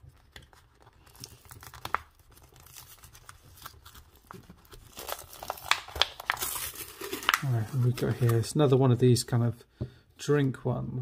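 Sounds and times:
paper packaging being torn open: 0.6 - 8.5.

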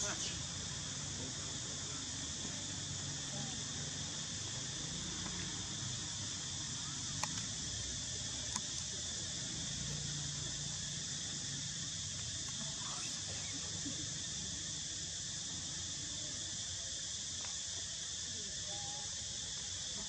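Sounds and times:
high-pitched insect chorus drone: 0.0 - 20.0
faint sharp clicks: 7.1 - 7.5, 8.5 - 8.8.

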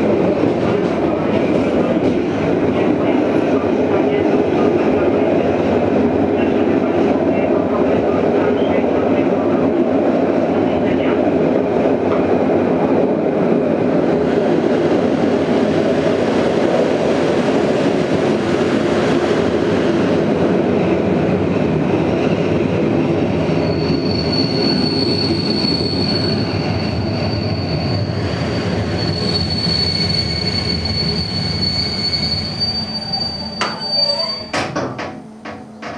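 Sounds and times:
train rumbling on track: 0.0 - 35.9
high wheel and brake squeal: 23.6 - 34.7.

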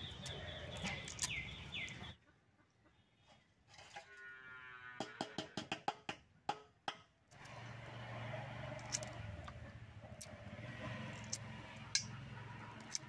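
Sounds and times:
eggshells cracking against metal bowl: 8.7 - 10.4, 11.0 - 13.0.

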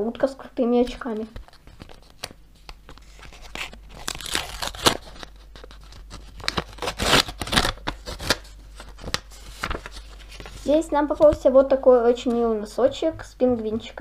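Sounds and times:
paper tearing and rustling: 2.9 - 11.3.

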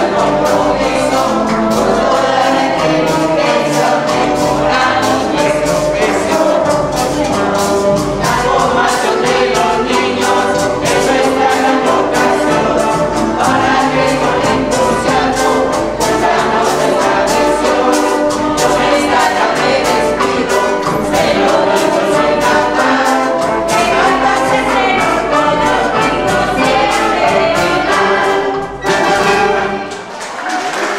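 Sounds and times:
group singing: 0.0 - 30.4
brass band playing: 0.0 - 30.9
applause: 29.9 - 30.9.

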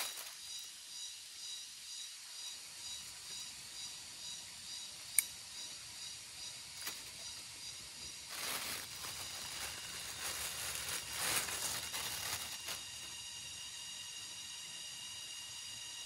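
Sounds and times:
rustling and crinkling: 0.0 - 0.7, 6.8 - 7.2, 8.3 - 13.1
insect chorus: 0.0 - 16.0
sharp click: 5.1 - 5.4.

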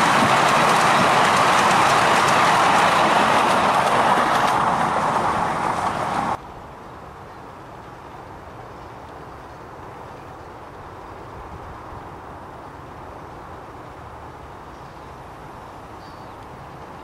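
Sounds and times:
train carriages rumbling on track: 0.0 - 6.4
faint outdoor background: 0.0 - 17.0.

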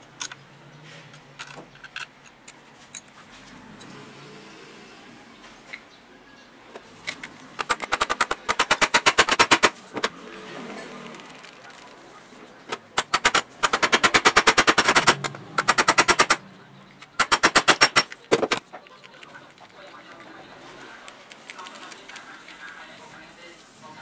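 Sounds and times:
impact driver hammering: 12.8 - 16.4, 17.2 - 18.6.

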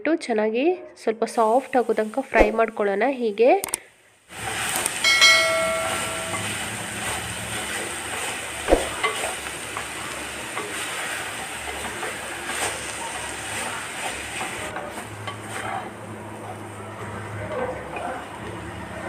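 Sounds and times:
food sizzling in a pot: 1.4 - 2.3, 4.3 - 17.4.

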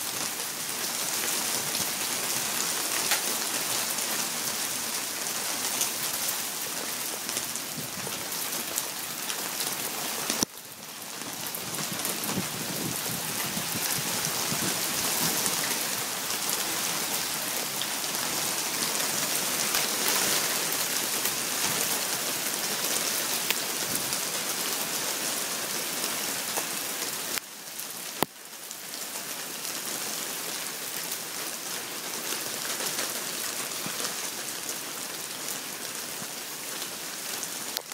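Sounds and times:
hailstones pattering: 11.1 - 24.2.

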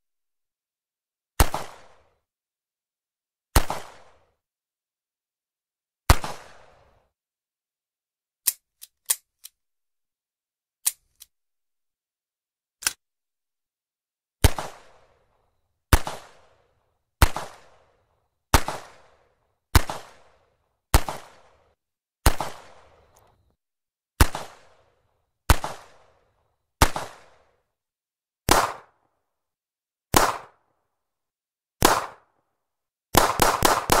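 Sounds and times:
dry clicks: 8.4 - 9.6, 10.8 - 11.3, 12.8 - 13.0
revolver gunshots: 28.5 - 28.9, 30.1 - 30.6, 31.8 - 32.3, 33.2 - 34.0.

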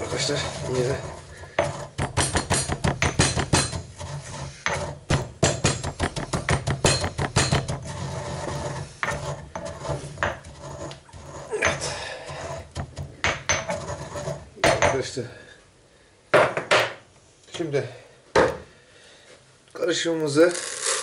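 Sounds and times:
pestle pounding in mortar: 1.6 - 4.1, 4.7 - 8.2, 9.1 - 13.8.

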